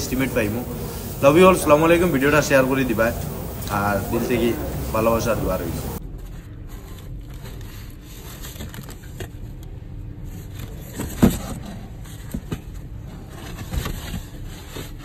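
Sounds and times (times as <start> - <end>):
cardboard flaps scraping: 10.2 - 15.0.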